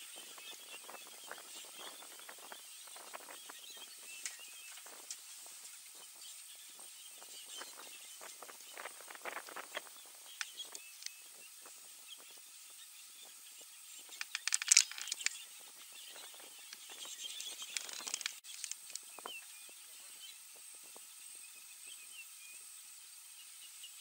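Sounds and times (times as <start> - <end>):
dry brush crackling and snapping: 14.2 - 15.4, 16.2 - 19.1.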